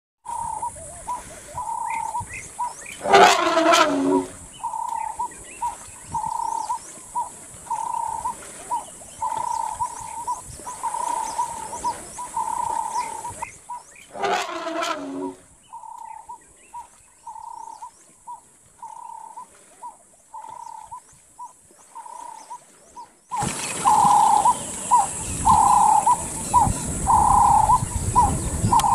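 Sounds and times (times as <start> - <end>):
elephant roaring: 3.0 - 4.4, 14.1 - 15.4
steady high hiss: 23.4 - 28.9.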